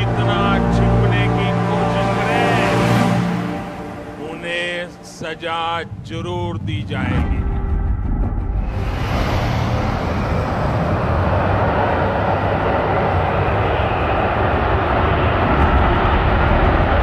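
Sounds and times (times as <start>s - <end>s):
fighter jet taking off: 0.0s - 17.0s.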